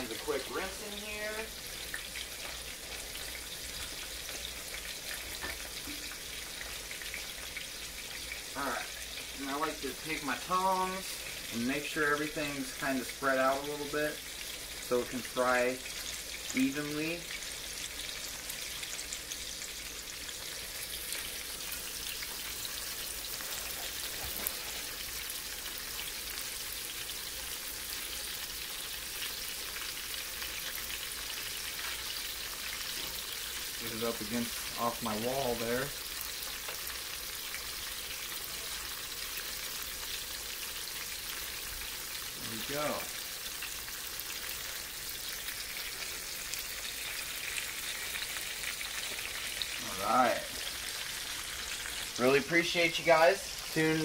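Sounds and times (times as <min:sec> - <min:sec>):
fish frying in hot oil: 0:00.0 - 0:54.0.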